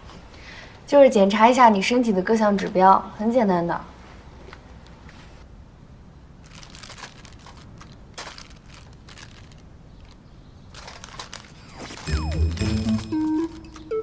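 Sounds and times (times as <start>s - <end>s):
rustling and clicking from handling: 6.4s - 14.0s.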